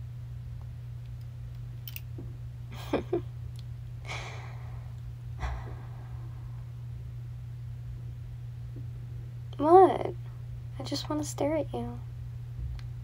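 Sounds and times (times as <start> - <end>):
low electrical hum: 0.0 - 13.0
faint breath: 4.0 - 6.8.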